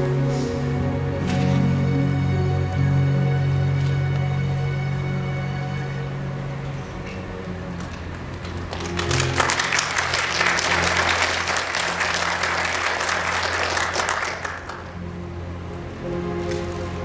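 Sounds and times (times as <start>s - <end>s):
soft sustained music: 0.0s - 17.0s
audience applauding: 7.8s - 15.0s.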